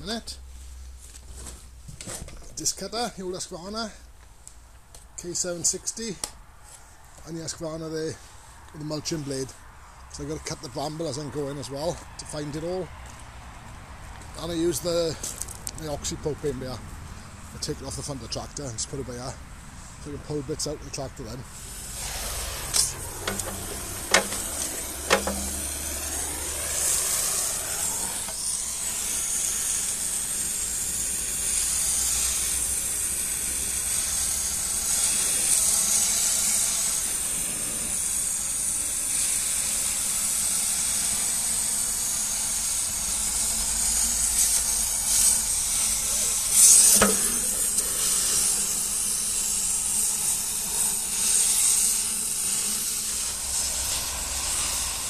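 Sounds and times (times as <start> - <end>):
cutting torch hissing: 19.9 - 55.0
sharp metal knocks: 23.2 - 25.6, 46.8 - 47.6.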